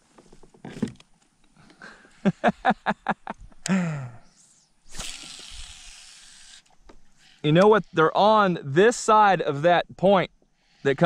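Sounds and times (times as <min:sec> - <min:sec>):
steady hiss: 0:01.5 - 0:11.0
man vocalizing without words: 0:03.7 - 0:04.2.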